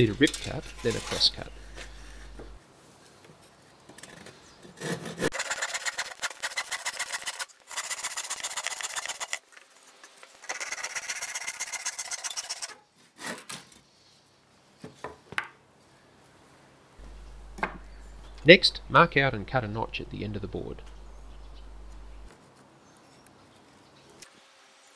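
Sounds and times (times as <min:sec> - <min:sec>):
handsaw cutting timber: 0:04.8 - 0:09.4, 0:10.4 - 0:12.7
sharp wooden knocks: 0:17.0 - 0:18.3.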